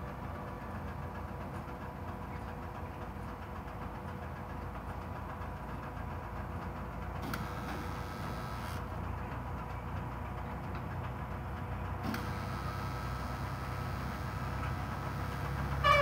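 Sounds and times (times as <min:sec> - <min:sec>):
pile-driving machinery rumble: 0:00.0 - 0:16.0.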